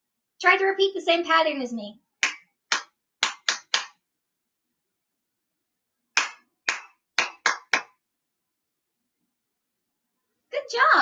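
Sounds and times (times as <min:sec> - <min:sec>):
hand clapping in rhythm: 0:02.2 - 0:04.0, 0:06.1 - 0:08.0.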